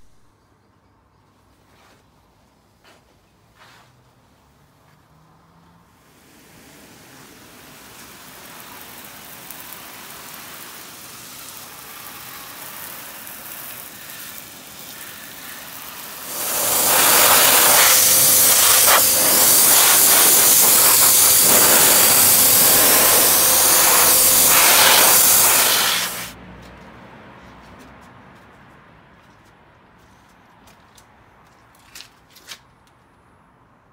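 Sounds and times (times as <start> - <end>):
water spraying: 6.0 - 26.4
faint steady whine: 6.5 - 26.3.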